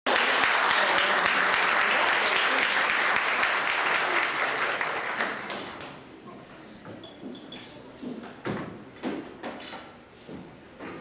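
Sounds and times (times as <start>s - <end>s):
audience applauding: 0.1s - 5.9s.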